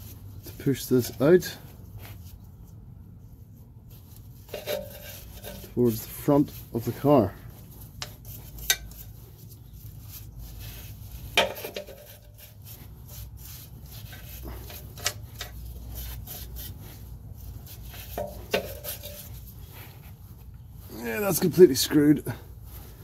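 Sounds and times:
wire brush scrubbing metal: 3.9s - 20.3s.

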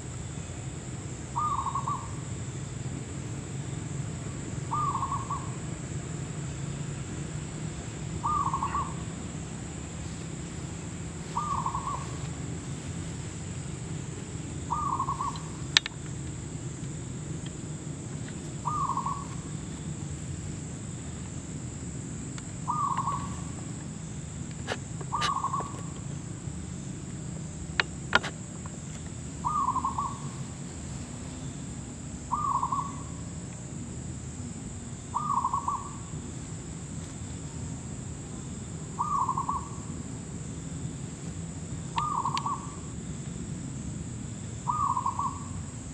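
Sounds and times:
dove cooing: 4.7s - 5.6s, 8.2s - 9.2s, 11.3s - 12.3s, 14.7s - 15.6s, 18.6s - 19.5s, 22.7s - 23.6s, 24.6s - 26.0s, 29.4s - 30.3s, 32.3s - 33.0s, 39.0s - 39.8s, 44.7s - 45.5s.

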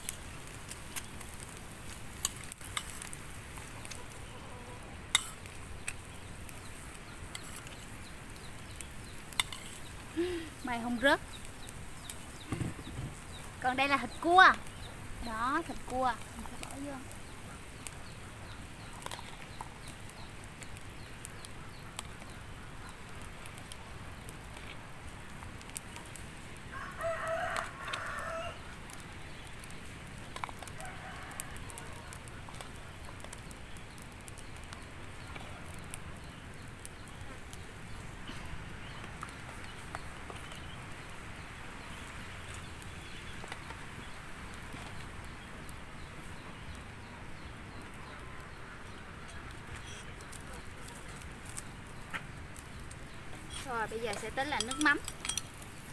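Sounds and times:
rooster crowing: 26.7s - 28.6s, 30.7s - 32.3s.

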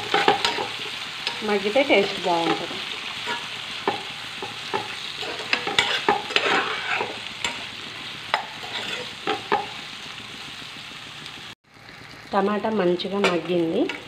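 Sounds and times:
metal spatula scraping a pan: 0.0s - 9.8s
vegetables sizzling in oil: 0.0s - 14.0s.

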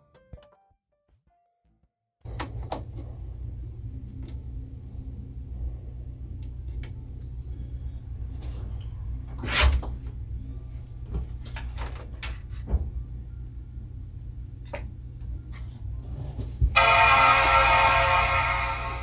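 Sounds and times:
computer humming: 2.3s - 9.2s, 16.8s - 19.0s.

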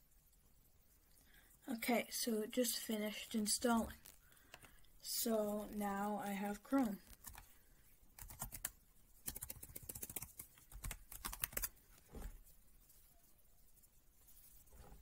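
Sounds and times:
computer keyboard typing: 7.1s - 7.5s, 8.2s - 11.7s.

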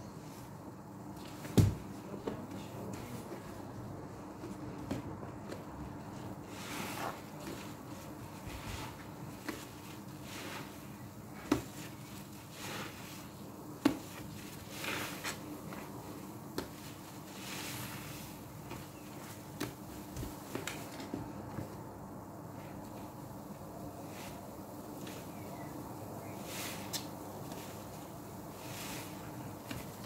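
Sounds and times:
sponge squelching in soapy water: 6.0s - 20.5s, 23.9s - 30.0s.

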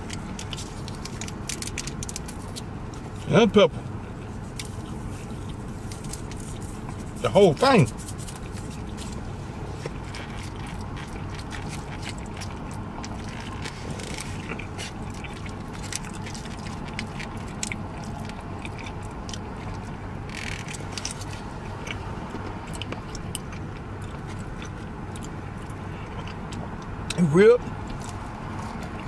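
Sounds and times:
man chewing food: 0.0s - 7.2s, 7.9s - 29.0s
low hum of car cabin: 0.0s - 29.0s.

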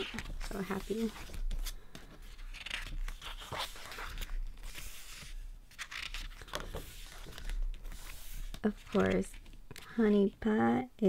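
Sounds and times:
pages turning: 0.0s - 9.9s.

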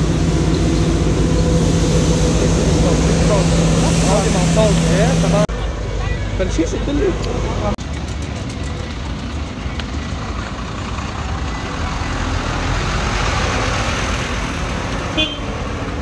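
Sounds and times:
hiss: 0.0s - 5.5s
low engine rumble: 0.0s - 16.0s
street noise: 0.0s - 16.0s.

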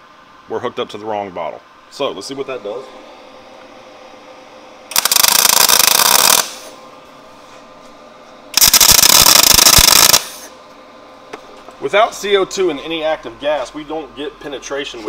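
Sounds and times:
welding arc crackling: 4.9s - 6.7s, 8.6s - 10.5s.

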